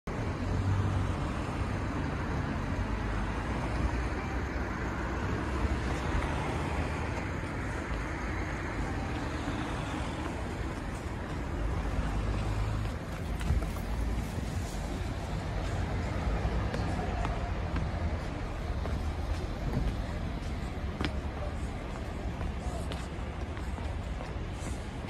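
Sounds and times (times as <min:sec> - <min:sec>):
city street traffic: 0:00.0 - 0:25.0.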